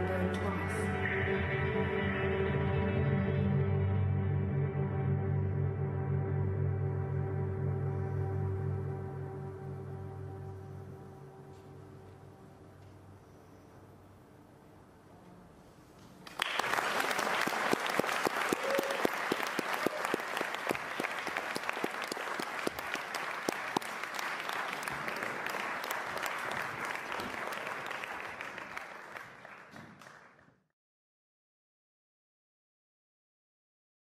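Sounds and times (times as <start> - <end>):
audience applauding: 16.2 - 30.6.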